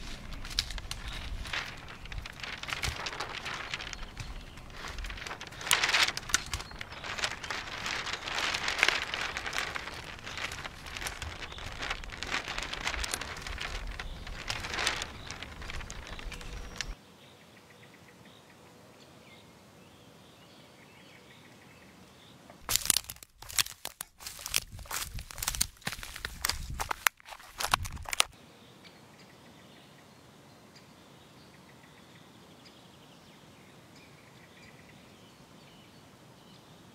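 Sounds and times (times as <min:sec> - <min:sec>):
footsteps crunching on branches: 0:00.0 - 0:17.0, 0:22.6 - 0:28.4
paper rustling and crinkling: 0:00.0 - 0:17.0, 0:22.6 - 0:28.4.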